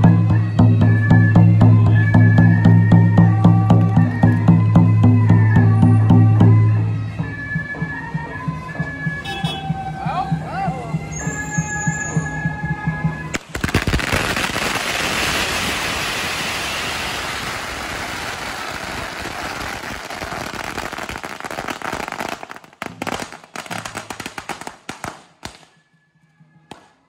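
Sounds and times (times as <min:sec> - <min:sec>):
firecrackers crackling: 0:13.3 - 0:25.8.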